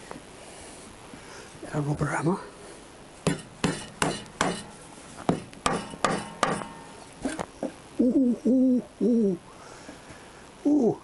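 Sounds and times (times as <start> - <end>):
rubber mallet knocking on metal: 3.3 - 4.7, 5.3 - 6.8.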